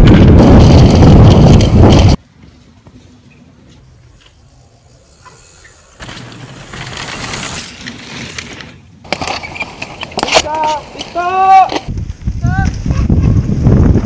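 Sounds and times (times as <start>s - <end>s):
bike tyres skidding on dirt: 0.0s - 14.0s
bikes rattling and knocking: 0.0s - 14.0s.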